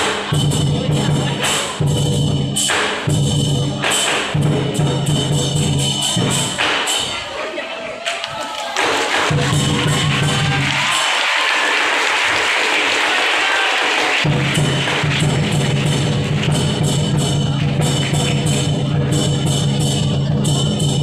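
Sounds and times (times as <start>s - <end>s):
big drum pounding: 0.0s - 7.0s, 8.8s - 11.7s, 13.8s - 21.0s
cymbals clashing: 0.0s - 7.4s, 13.5s - 21.0s.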